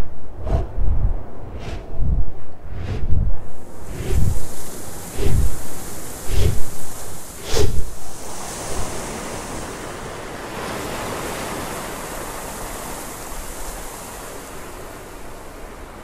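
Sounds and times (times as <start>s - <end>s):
ocean surf rushing: 0.0s - 16.0s.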